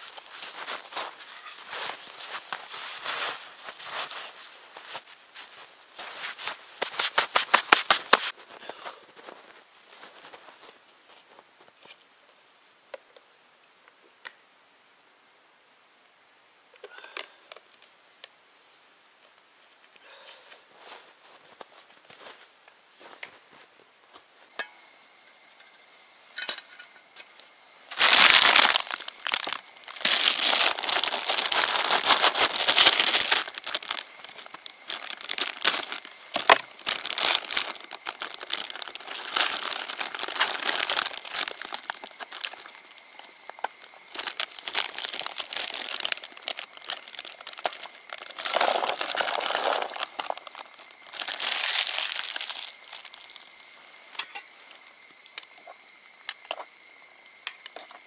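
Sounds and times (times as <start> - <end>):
plastic bag crinkling: 0.0 - 8.4, 27.9 - 42.9, 44.0 - 53.6.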